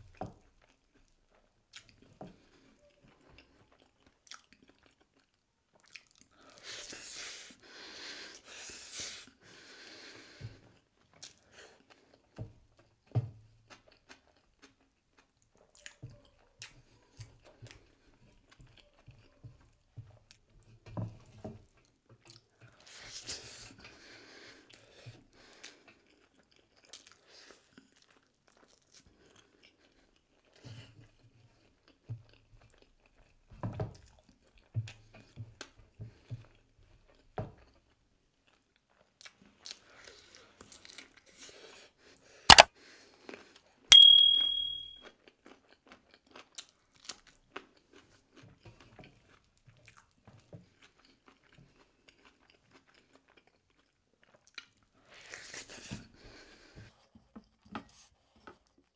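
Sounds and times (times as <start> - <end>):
soft chewing and mouth sounds: 0.1 - 34.2, 45.5 - 58.9
metal dish clinking and ringing: 43.9 - 44.9
sharp knock: 43.9 - 44.9.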